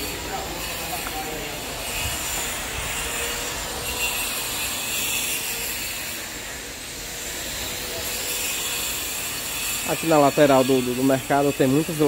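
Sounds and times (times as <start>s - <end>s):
busy street noise: 0.0s - 12.0s.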